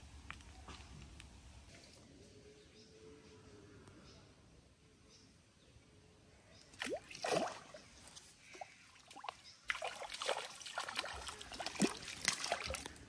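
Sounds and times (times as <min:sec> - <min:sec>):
pond water splashing: 0:06.7 - 0:13.0.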